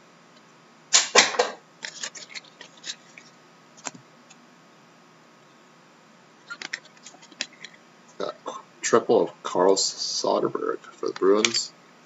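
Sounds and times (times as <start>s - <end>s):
cards flicking and tapping: 3.8s - 4.0s.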